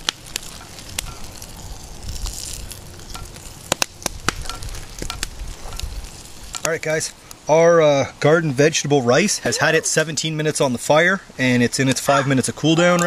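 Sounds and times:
rice and water boiling: 0:00.0 - 0:13.0
wood fire crackling and popping: 0:00.0 - 0:13.0.

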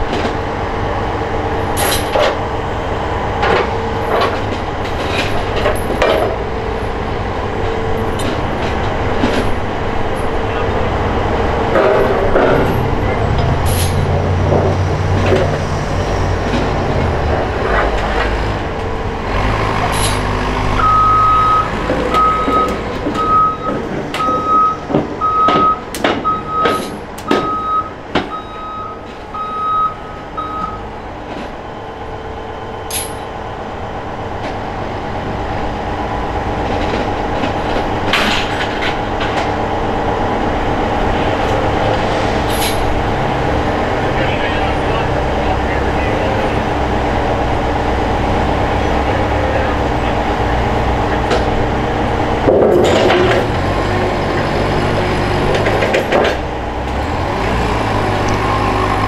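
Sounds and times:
diesel equipment rumbling: 0:00.0 - 0:59.0
metallic clanks and knocks: 0:03.4 - 0:06.4, 0:11.7 - 0:15.7, 0:52.4 - 0:53.7
backup alarm beeping: 0:20.8 - 0:30.9.

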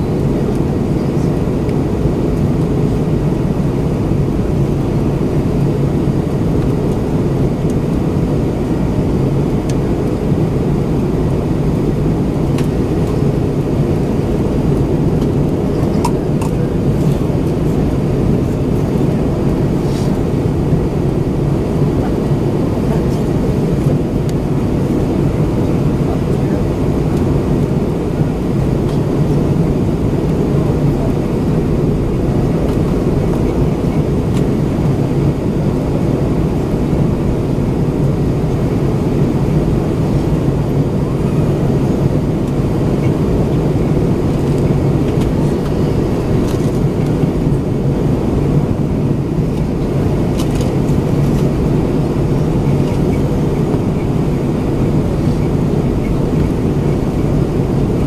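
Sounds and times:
air rushing along fuselage: 0:00.0 - 0:58.0
jet engine drone: 0:00.0 - 0:58.0
steady low hum: 0:00.0 - 0:58.0.

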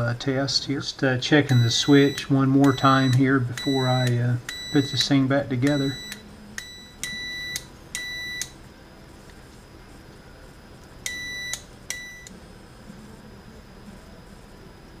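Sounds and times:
continuity tester beeping: 0:01.1 - 0:08.6, 0:11.0 - 0:12.4.

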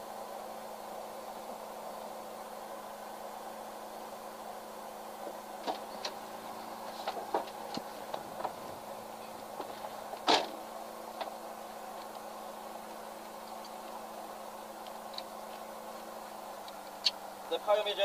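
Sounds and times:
low steady hum: 0:00.0 - 0:18.0
thud: 0:10.2 - 0:10.6.

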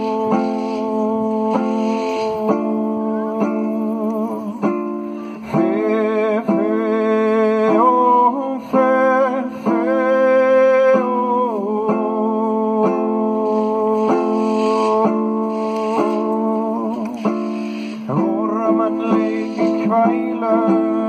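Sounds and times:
man singing held notes: 0:00.0 - 0:04.7, 0:05.4 - 0:21.0
plucked lyre: 0:00.0 - 0:08.0.

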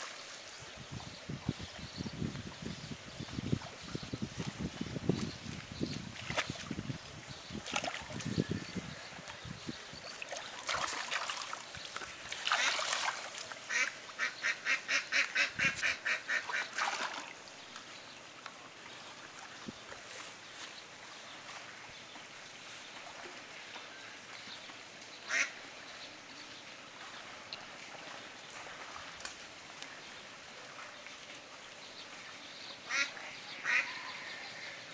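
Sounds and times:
water splashing from net: 0:07.6 - 0:08.3, 0:10.1 - 0:14.3, 0:16.3 - 0:17.4
duck quacking: 0:13.7 - 0:16.7, 0:32.9 - 0:34.0.

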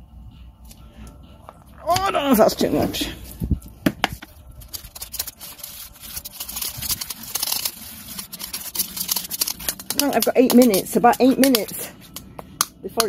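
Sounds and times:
metal spoon scraping a tin: 0:04.6 - 0:12.3.

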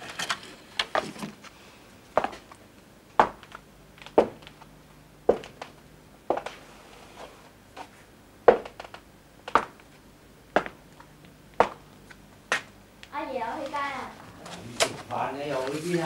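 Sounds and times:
footsteps on hard floor: 0:06.3 - 0:06.6, 0:07.2 - 0:09.9.

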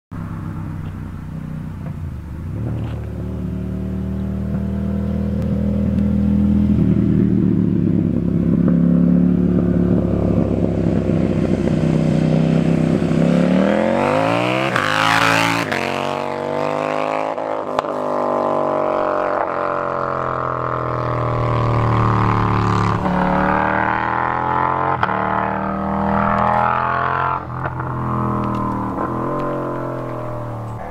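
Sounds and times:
motorcycle engine revving past: 0:01.2 - 0:30.9.

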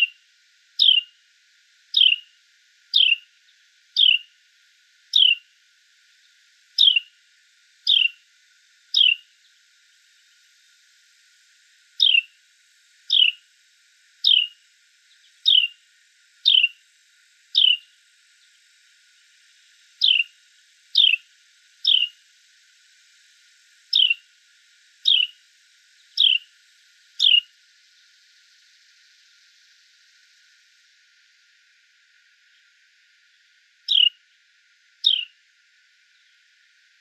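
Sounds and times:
bird chirping with downward slide: 0:02.0 - 0:02.2, 0:03.0 - 0:03.2, 0:09.0 - 0:09.2, 0:13.1 - 0:13.4, 0:20.0 - 0:20.3, 0:21.0 - 0:21.2, 0:21.8 - 0:22.1, 0:23.9 - 0:24.2, 0:25.1 - 0:25.3, 0:26.2 - 0:26.4, 0:27.2 - 0:27.5, 0:33.9 - 0:34.2, 0:35.0 - 0:35.3.

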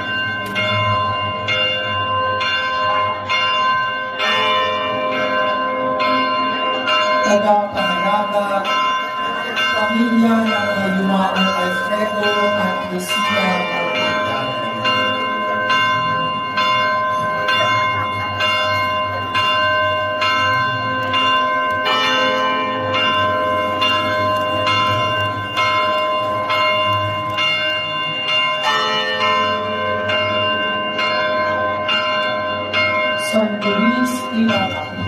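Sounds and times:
church bells pealing: 0:00.0 - 0:35.0
crowd murmur: 0:06.1 - 0:28.7.

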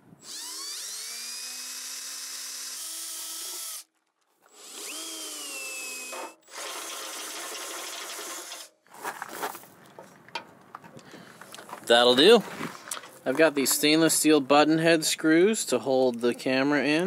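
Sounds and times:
power drill whining: 0:00.2 - 0:08.7.

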